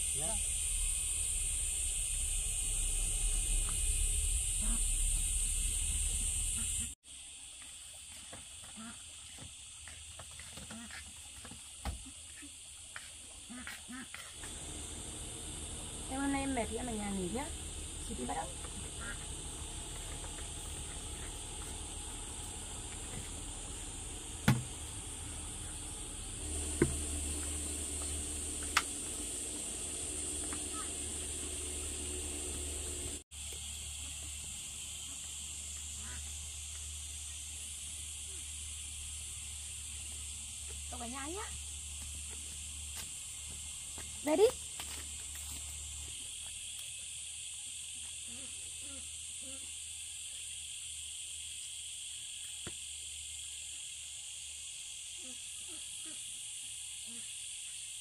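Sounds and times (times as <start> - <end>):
low hum: 0.0 - 7.0, 14.4 - 42.3
insects chorus drone: 0.0 - 58.0.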